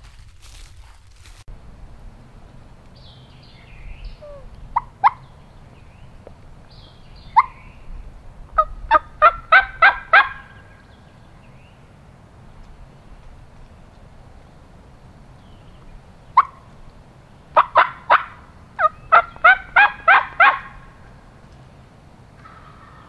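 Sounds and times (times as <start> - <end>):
turkey yelping: 4.0 - 5.4, 7.2 - 7.7, 8.5 - 10.8, 16.4 - 16.7, 17.5 - 21.3, 22.4 - 23.0.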